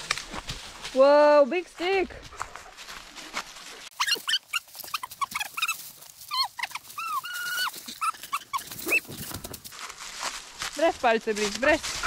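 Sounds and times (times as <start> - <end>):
dog whining: 3.9 - 9.1.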